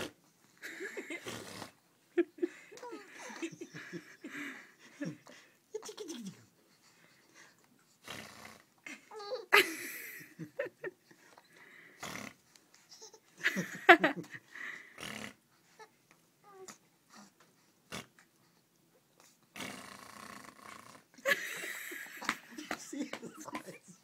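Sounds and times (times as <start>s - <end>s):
baby laughing: 9.0s - 9.8s, 12.9s - 13.3s.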